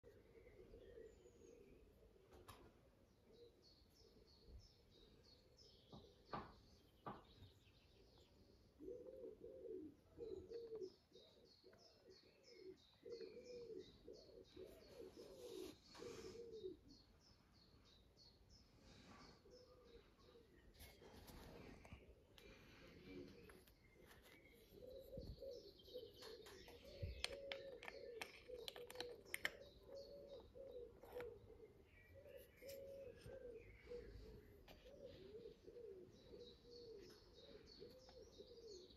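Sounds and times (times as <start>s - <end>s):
small bird chirping: 3.2s - 38.9s
dove cooing: 8.7s - 17.0s, 19.4s - 38.9s.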